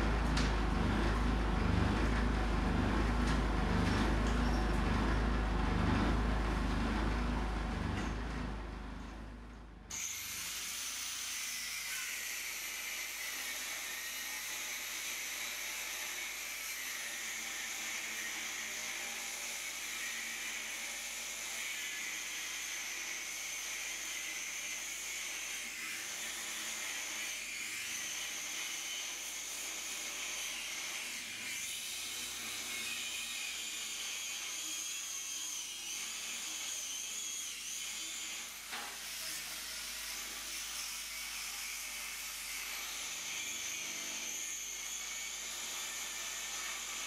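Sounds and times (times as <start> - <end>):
angle grinder cutting steel: 9.9 - 47.0.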